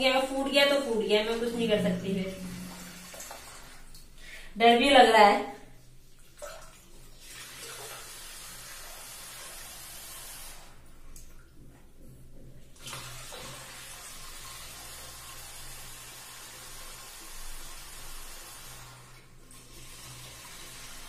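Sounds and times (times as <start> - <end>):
tap water filling balloon: 1.5 - 4.4, 6.2 - 15.6.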